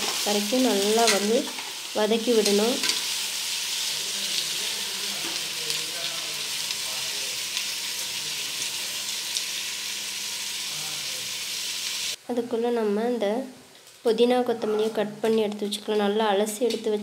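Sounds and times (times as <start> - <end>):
tomatoes sizzling in hot oil: 0.0 - 12.2.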